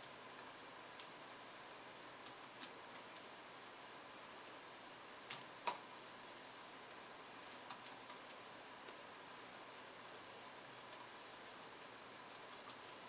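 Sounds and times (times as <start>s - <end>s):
faint room hiss: 0.0s - 13.0s
computer key clicks: 7.5s - 8.4s, 12.3s - 13.0s.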